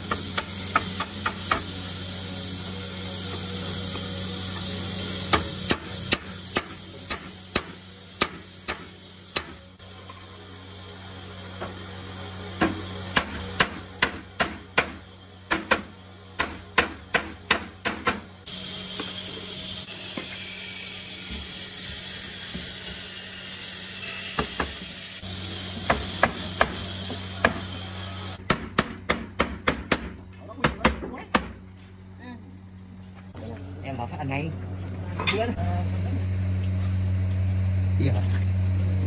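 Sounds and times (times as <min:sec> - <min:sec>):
hammer striking wooden frame: 0:12.6 - 0:18.3, 0:28.4 - 0:31.6.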